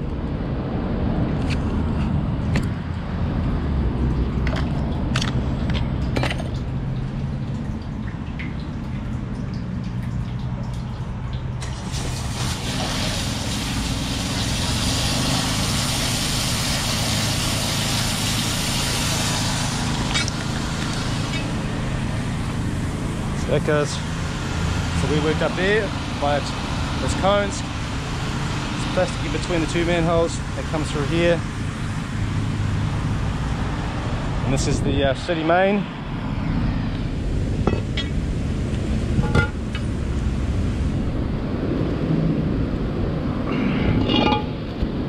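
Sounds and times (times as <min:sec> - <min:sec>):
sharp clicks and knocks: 0:04.4 - 0:11.6
water rushing from hose: 0:11.6 - 0:32.0.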